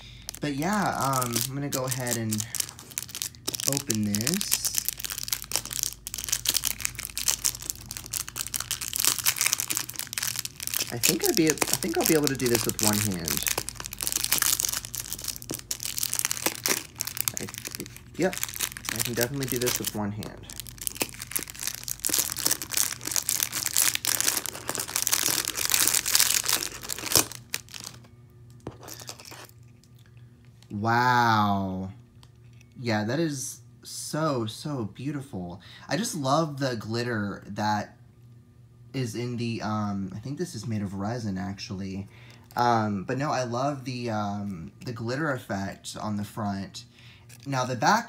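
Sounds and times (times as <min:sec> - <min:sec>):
plastic bag crinkling: 0:00.0 - 0:29.9.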